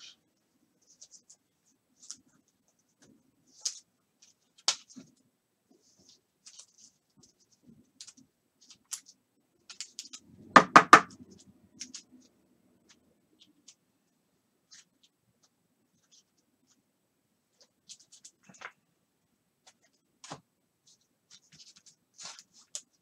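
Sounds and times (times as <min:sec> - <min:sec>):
sharp knocks: 0:10.5 - 0:11.1.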